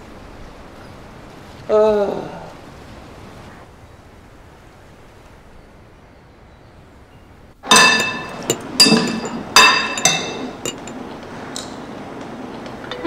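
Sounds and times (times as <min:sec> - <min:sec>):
glassware clinking: 0:07.7 - 0:11.0.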